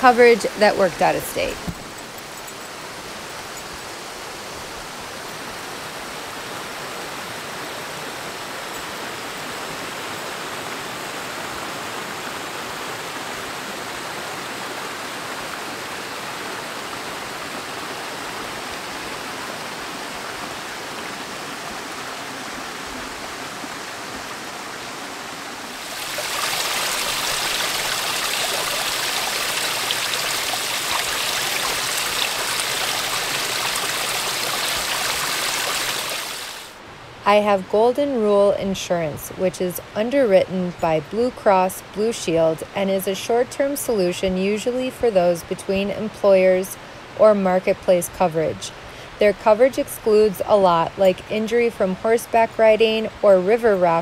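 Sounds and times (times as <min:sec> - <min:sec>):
creek water rushing over rocks: 0:00.0 - 0:54.0
small waterfall splashing into pool: 0:01.4 - 0:36.8.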